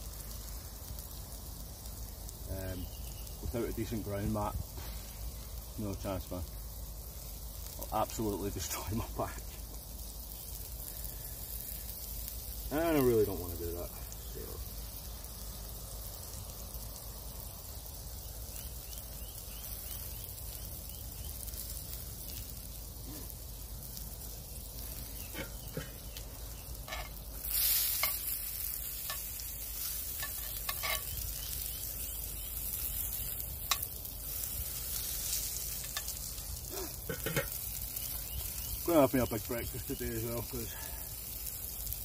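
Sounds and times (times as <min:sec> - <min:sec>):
sausages sizzling in a frying pan: 0:00.0 - 0:42.0
metal tongs clicking on a pan: 0:30.2 - 0:31.2, 0:33.6 - 0:33.9.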